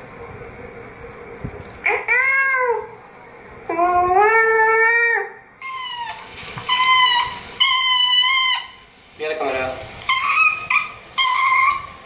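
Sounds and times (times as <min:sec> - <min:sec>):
dog whining: 0:01.8 - 0:03.0, 0:03.7 - 0:08.9, 0:10.1 - 0:12.0.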